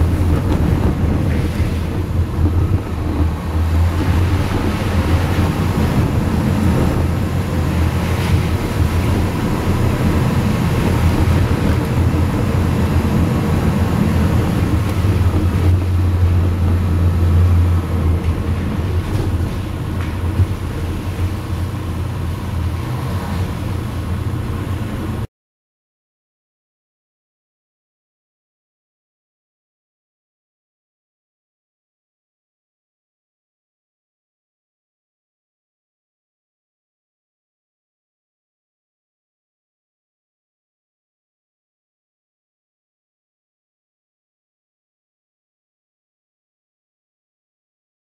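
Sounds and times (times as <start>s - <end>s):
car engine and tyre rumble: 0.0s - 25.3s.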